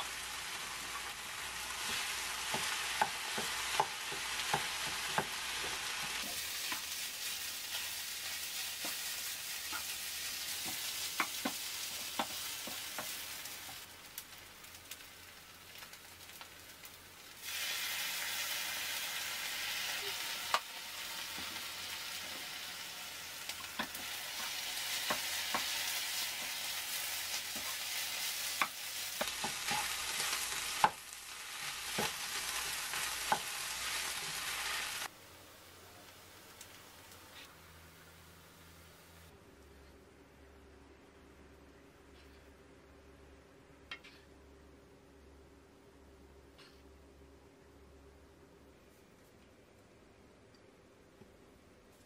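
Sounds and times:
rice sizzling in a frying pan: 0.0 - 37.5.

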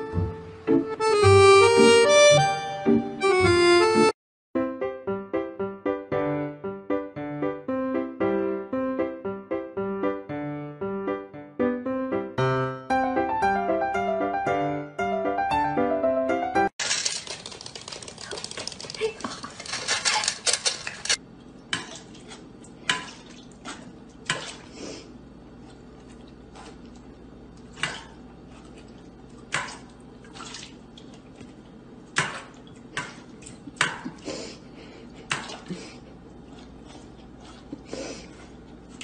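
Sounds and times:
kibble scraping and rattling: 16.8 - 21.2.

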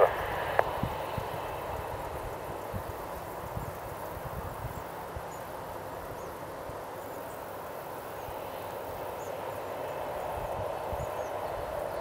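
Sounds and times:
jet engines idling: 0.0 - 3.5.

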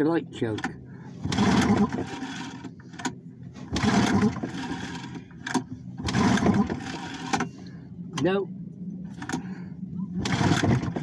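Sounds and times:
outboard motor pull-start cranking: 0.6 - 7.5, 9.1 - 9.5, 10.2 - 11.0.

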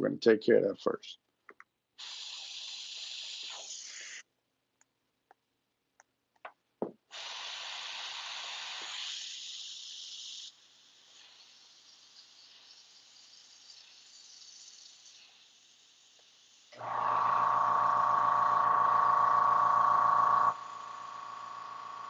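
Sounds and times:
airbrush spraying hiss: 2.0 - 4.2, 7.1 - 21.9.

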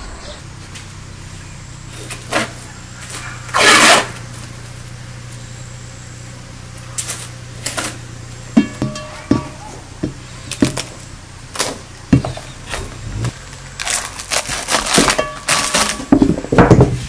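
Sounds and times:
steady low hum: 0.0 - 17.0
cling film rustling: 12.7 - 16.2.

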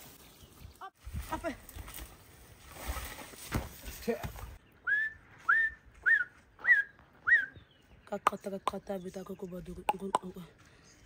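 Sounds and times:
rising whistles: 4.8 - 7.6.

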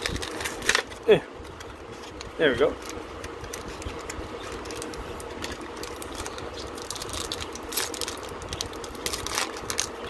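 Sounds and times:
foil wrapper crinkling: 0.0 - 10.0.

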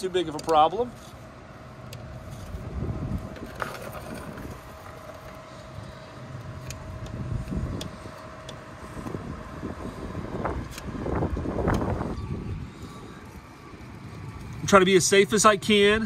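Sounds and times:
faint street traffic: 0.0 - 16.0
wind rumbling on microphone: 2.2 - 6.0, 6.6 - 14.7.

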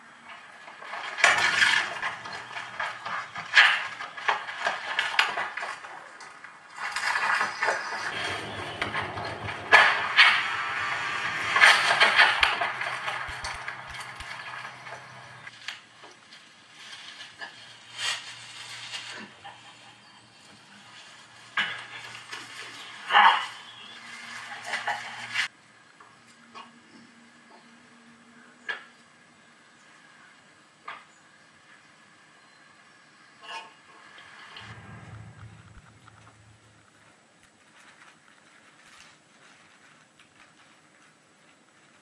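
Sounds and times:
rustling crashes: 0.8 - 6.0, 6.7 - 25.5, 34.6 - 39.0
steady low hum: 8.0 - 25.5, 34.6 - 38.1.

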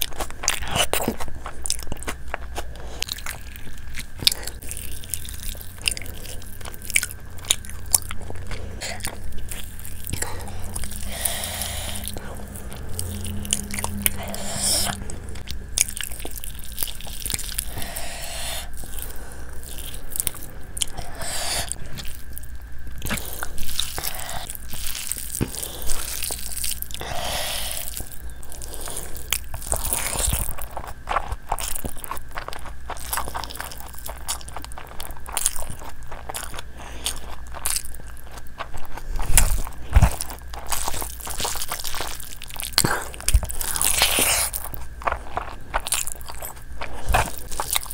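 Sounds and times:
chewing and crunching: 0.0 - 47.9
fingers squishing through food: 23.0 - 47.9.

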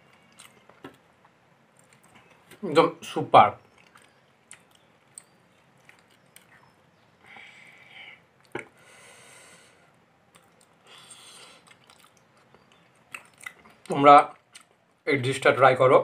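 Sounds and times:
soft mouth and breath noises: 3.6 - 13.9.

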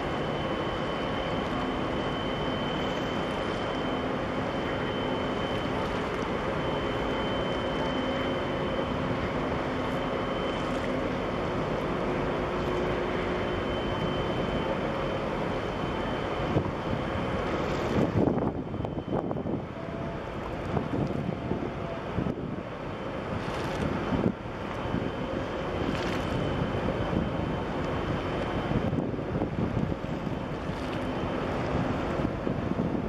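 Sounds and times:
ship engines droning: 0.0 - 33.0
thin high whine: 0.0 - 33.0
wind buffeting microphone: 16.5 - 33.0.

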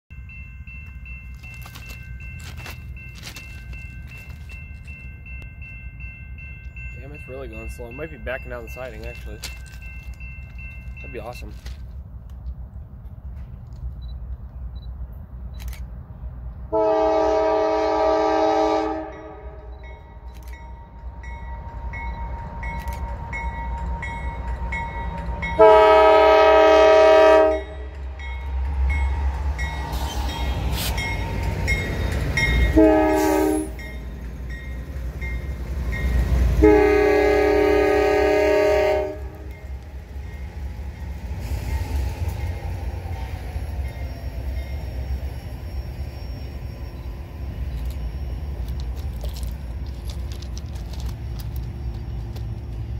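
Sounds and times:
locomotive engine and wheels rumbling: 0.1 - 52.9
locomotive air horn blasts: 16.7 - 19.6, 25.6 - 27.9, 32.7 - 33.8, 36.6 - 39.5.

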